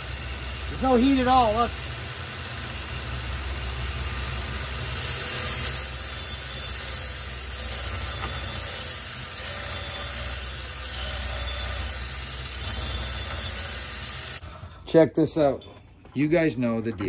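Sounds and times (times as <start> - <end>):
belt grinder humming: 0.0 - 14.5
axe grinding hiss: 4.9 - 14.5.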